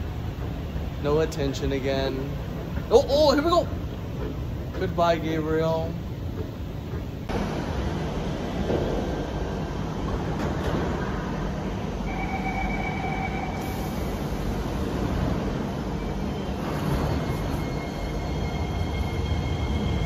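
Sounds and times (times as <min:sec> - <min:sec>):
metro train rumble: 0:00.0 - 0:20.0
faint high whining tones: 0:11.6 - 0:20.0.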